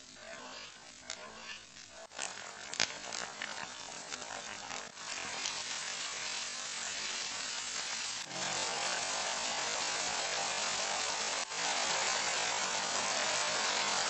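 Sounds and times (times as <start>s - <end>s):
wooden spatula scraping a pan: 0.0s - 8.9s
sauce sizzling in a frying pan: 4.9s - 14.0s.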